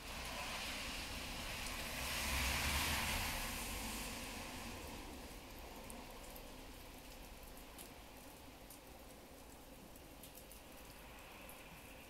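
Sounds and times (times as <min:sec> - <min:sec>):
vehicle passing by: 0:00.1 - 0:05.3.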